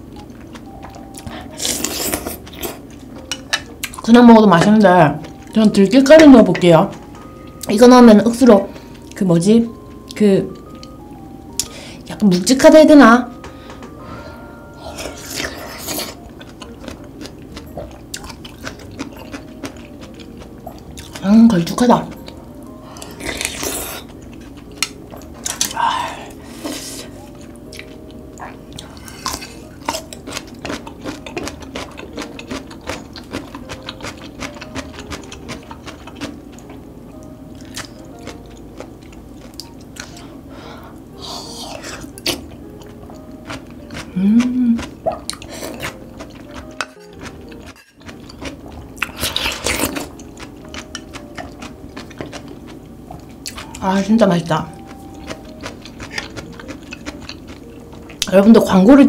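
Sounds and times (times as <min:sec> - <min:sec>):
faint background music: 0:00.0 - 0:59.0
wet chewing and mouth clicks: 0:15.1 - 0:21.2, 0:27.7 - 0:36.8, 0:42.0 - 0:53.8, 0:55.1 - 0:58.3.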